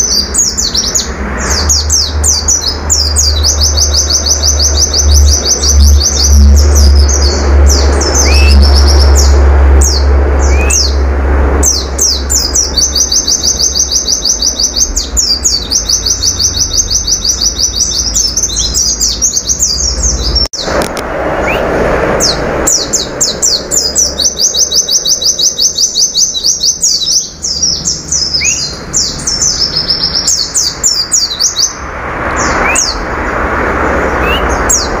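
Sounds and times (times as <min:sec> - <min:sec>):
bird singing rapid trills: 0:00.0 - 0:20.8, 0:21.4 - 0:33.2, 0:34.0 - 0:35.0
loud low hum: 0:00.0 - 0:25.7.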